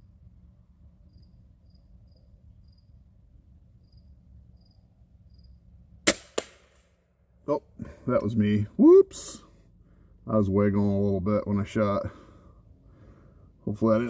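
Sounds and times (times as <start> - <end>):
crickets chirping: 0.0 - 6.0
crossbow firing crack: 6.0 - 7.0.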